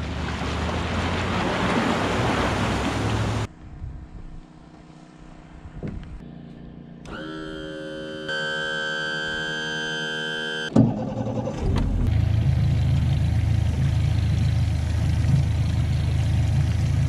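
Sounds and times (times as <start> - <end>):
churning water: 0.0 - 3.5, 10.7 - 17.0
outboard motor starting: 7.0 - 17.0
truck engine running: 8.2 - 17.0.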